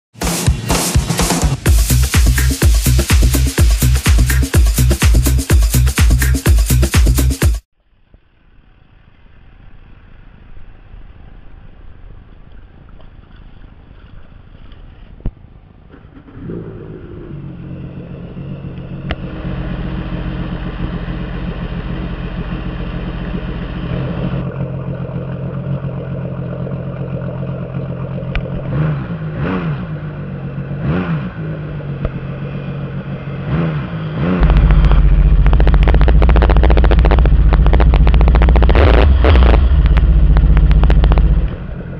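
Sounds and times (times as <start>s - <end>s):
jet ski engine revving: 15.9s - 41.9s.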